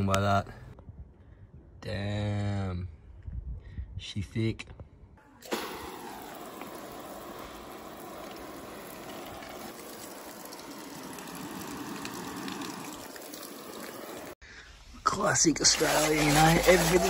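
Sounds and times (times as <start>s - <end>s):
hose spraying water on canvas: 5.4s - 14.4s, 15.8s - 17.0s.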